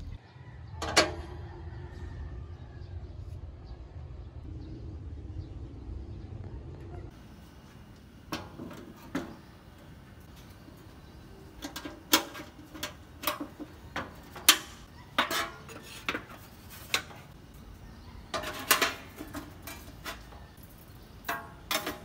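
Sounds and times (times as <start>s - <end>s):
sheet metal grill parts clanking: 8.2s - 22.0s.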